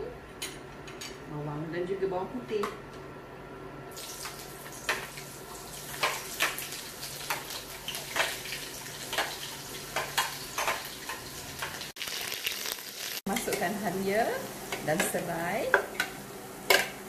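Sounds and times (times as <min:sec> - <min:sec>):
onions sizzling in hot oil: 0:03.9 - 0:17.0.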